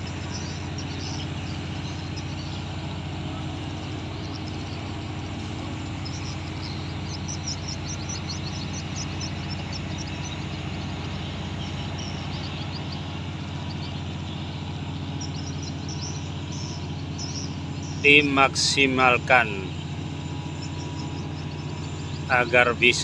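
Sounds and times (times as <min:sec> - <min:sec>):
ship engine humming: 0:00.0 - 0:23.0
small birds chirping: 0:00.0 - 0:23.0.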